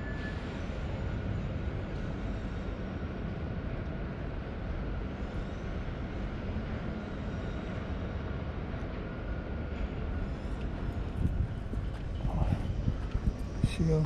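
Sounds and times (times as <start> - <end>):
faint city background: 0.0 - 14.0
wind buffeting microphone: 9.1 - 14.0.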